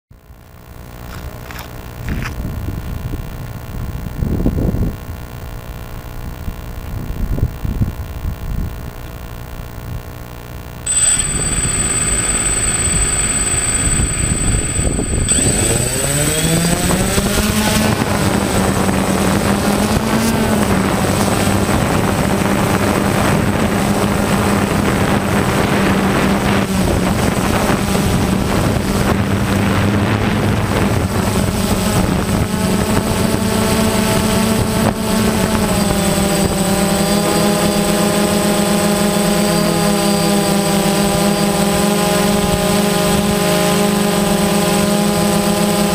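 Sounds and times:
thin high whistle: 10.9s - 17.6s
drone motors and propellers whining: 10.9s - 45.9s.

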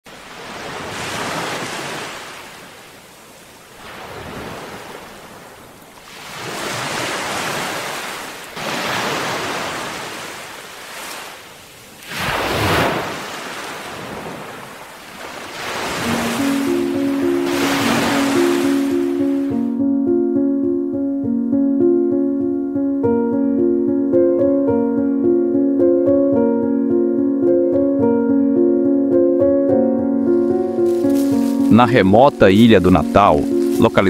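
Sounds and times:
ocean surf breaking on rocks: 0.1s - 19.7s, 30.3s - 34.0s
music: 16.0s - 34.0s.

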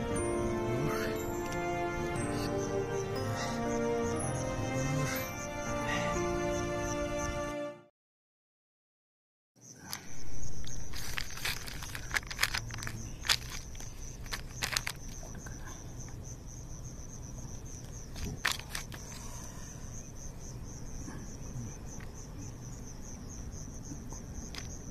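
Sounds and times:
crickets chirping: 0.0s - 7.7s, 9.6s - 24.9s
plastic package crinkling: 10.6s - 15.2s.

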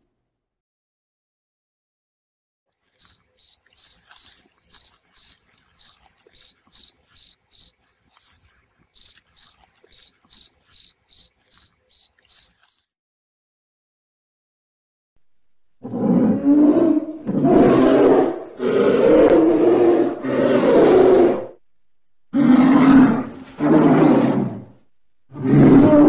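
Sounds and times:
cricket chirping: 2.8s - 12.9s.

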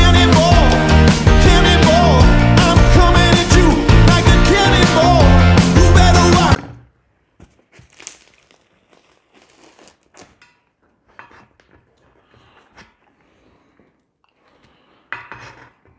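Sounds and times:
loud music: 0.0s - 6.6s
bread crust crackling as torn: 7.7s - 10.5s.

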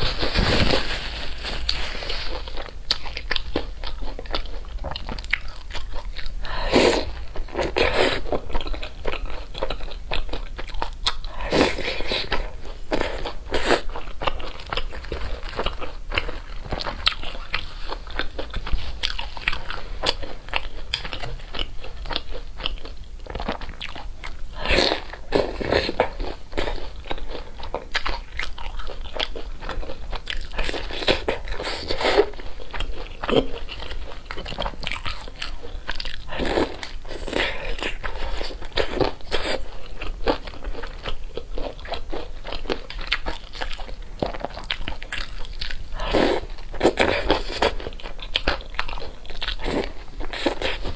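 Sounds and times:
crisp crunching of fried cutlet: 25.7s - 50.9s.

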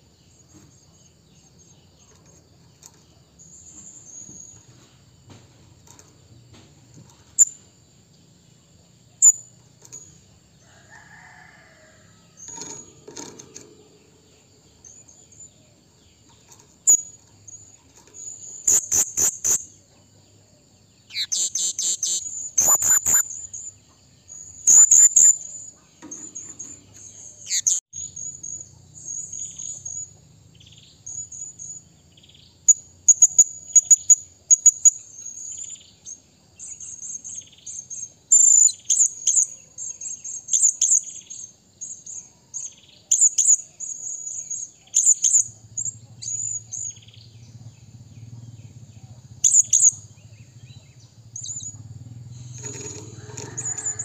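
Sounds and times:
parrot high-pitched chirps: 18.6s - 19.6s, 21.1s - 23.3s.

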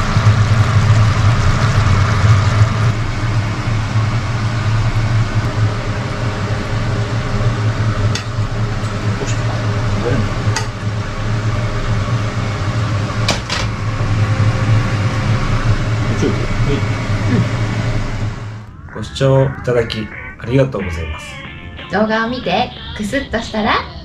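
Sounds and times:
electric motor humming: 0.0s - 20.0s.

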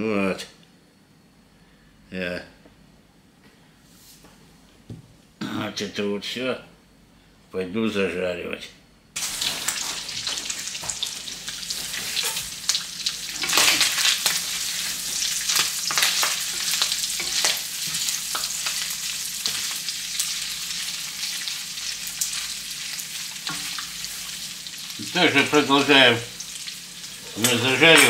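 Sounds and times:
meat sizzling in pan: 9.2s - 28.0s.

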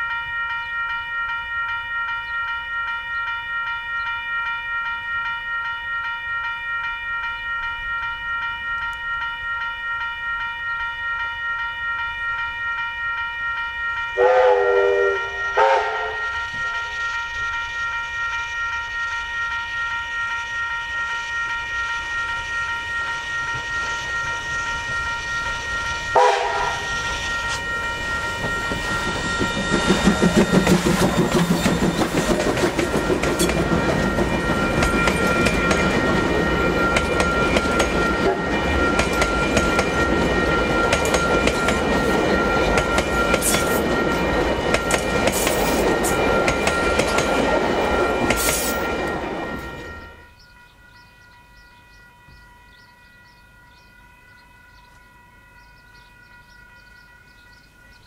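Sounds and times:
steam train running: 2.1s - 58.0s
steam whistle blasts: 14.2s - 17.2s, 23.4s - 28.3s.

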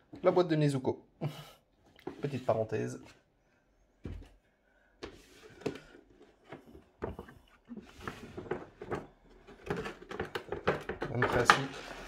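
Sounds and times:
cardboard rustling and scraping: 5.1s - 12.0s.

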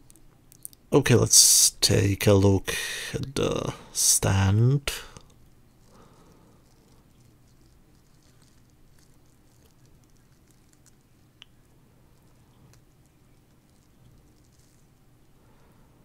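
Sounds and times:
plastic bag crinkling: 5.9s - 15.0s.

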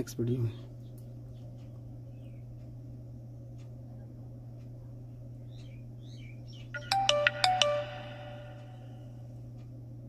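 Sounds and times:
low electrical hum: 0.0s - 10.0s
faint chirp: 5.3s - 9.2s.

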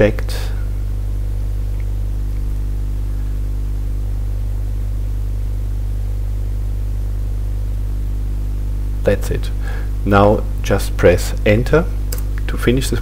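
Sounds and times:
low electrical hum and buzz: 0.0s - 13.0s.

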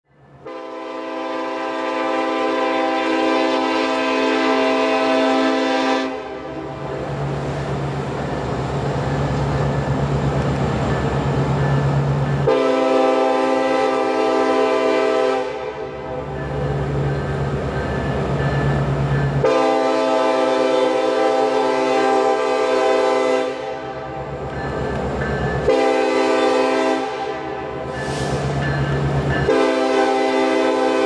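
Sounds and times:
locomotive horn blast: 0.4s - 7.0s, 12.4s - 16.4s, 19.4s - 24.3s, 25.6s - 28.5s, 29.4s - 31.0s.

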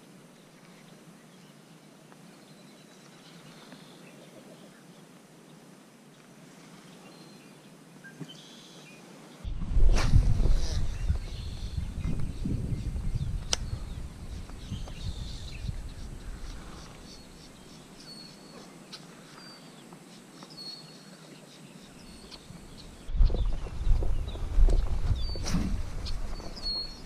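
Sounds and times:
birds chirping: 6.8s - 27.0s
sharp click: 13.4s - 13.7s
faint low rumbling: 22.5s - 27.0s.

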